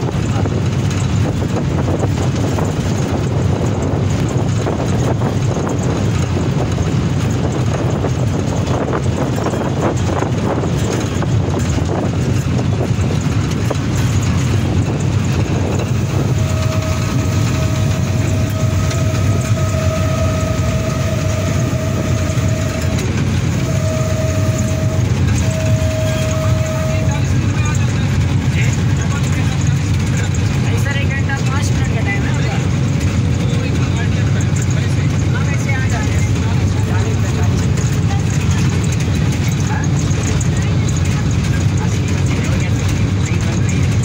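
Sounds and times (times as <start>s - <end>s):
diesel locomotive engine drone: 0.0s - 44.0s
rail noise: 0.0s - 44.0s
steady high whine: 13.7s - 29.2s.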